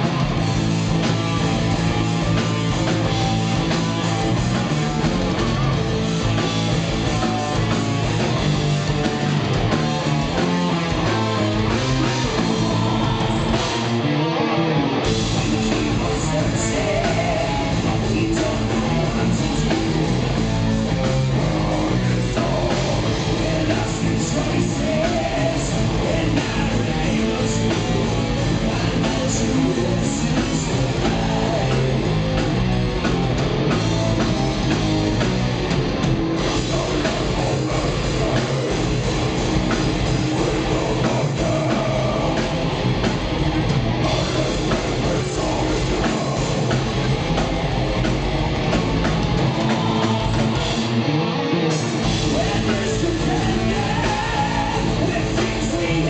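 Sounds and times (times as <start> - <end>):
drum kit: 0.0 - 14.3, 14.9 - 56.0
distorted electric guitars: 0.0 - 56.0
person singing: 11.0 - 20.2, 21.3 - 32.3, 36.4 - 39.4, 40.0 - 42.7, 44.0 - 46.9, 51.7 - 56.0.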